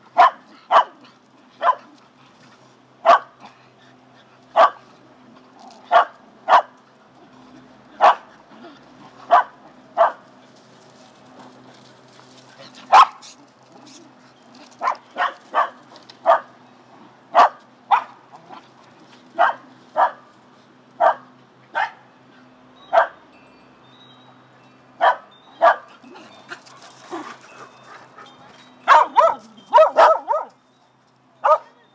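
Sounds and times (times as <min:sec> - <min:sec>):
dog barking: 0:00.2 - 0:01.0, 0:01.6 - 0:01.9, 0:03.0 - 0:03.4, 0:04.6 - 0:04.8, 0:05.9 - 0:06.7, 0:08.0 - 0:08.3, 0:09.3 - 0:10.2, 0:12.9 - 0:13.2, 0:14.8 - 0:16.5, 0:17.4 - 0:18.2, 0:19.4 - 0:20.2, 0:21.0 - 0:22.0, 0:25.0 - 0:25.9, 0:28.9 - 0:30.6, 0:31.4 - 0:31.8.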